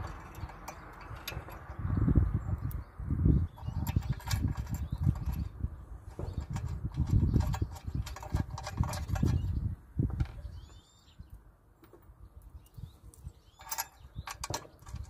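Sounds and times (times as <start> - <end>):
faint bird chirps: 10.3 - 11.4.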